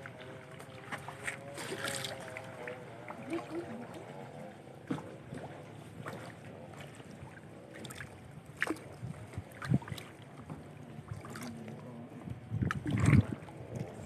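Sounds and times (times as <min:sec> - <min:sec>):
paddle dipping and dripping: 0:00.0 - 0:14.0
paddle splashes: 0:00.0 - 0:14.0.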